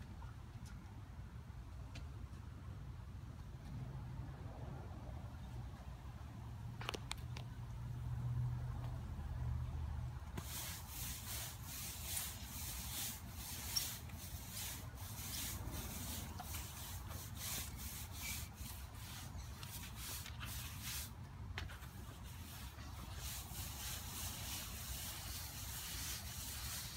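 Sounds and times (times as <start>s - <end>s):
push broom bristles rasping: 10.4s - 26.9s.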